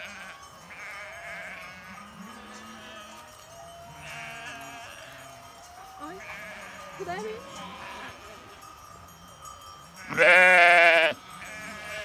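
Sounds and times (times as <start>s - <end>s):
sheep bleating: 0.0s - 8.4s, 10.0s - 12.0s.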